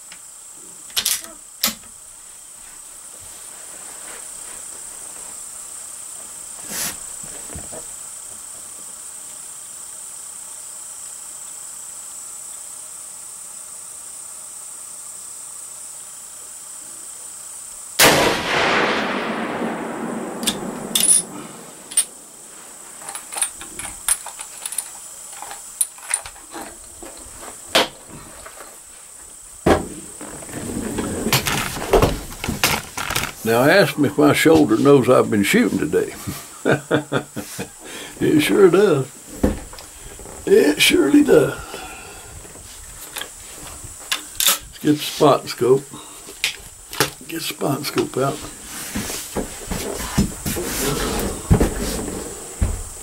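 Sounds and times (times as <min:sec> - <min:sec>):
crickets trilling: 0:00.0 - 0:53.0
rifle shot with echo: 0:18.0 - 0:22.4.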